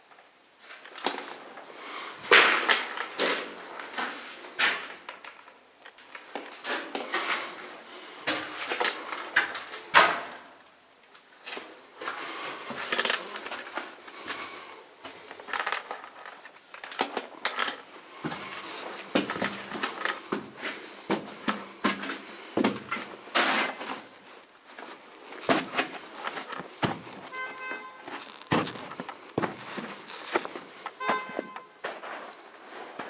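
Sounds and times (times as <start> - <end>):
footsteps crunching on concrete: 17.8 - 33.0.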